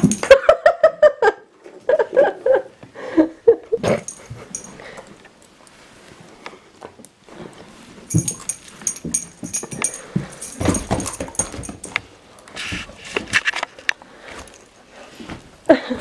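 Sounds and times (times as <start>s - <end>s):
rustling and small knocks: 3.8s - 15.6s.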